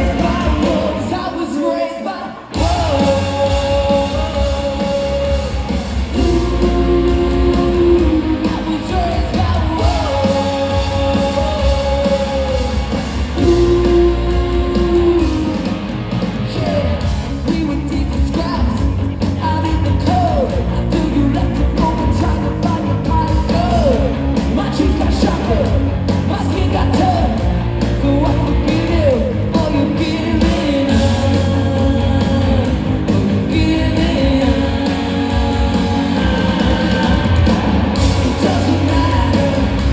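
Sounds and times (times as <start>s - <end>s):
bass guitar: 0.0s - 1.6s, 2.4s - 39.9s
drums: 0.0s - 39.9s
electric guitar: 0.0s - 39.9s
woman singing lead: 6.2s - 12.8s.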